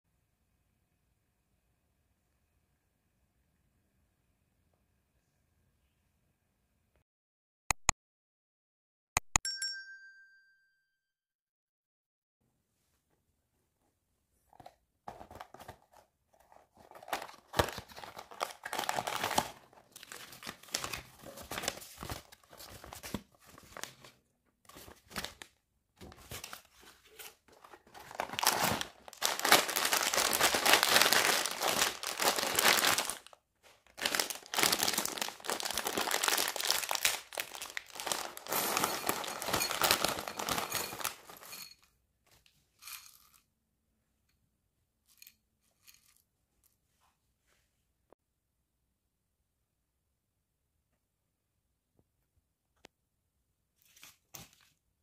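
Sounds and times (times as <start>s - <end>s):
packaging crinkling and rustling: 14.5s - 41.7s.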